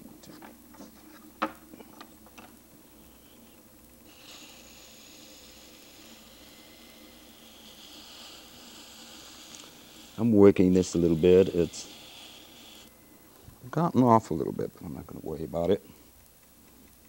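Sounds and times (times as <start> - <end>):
wet hands rubbing clay on potter's wheel: 4.1 - 12.9.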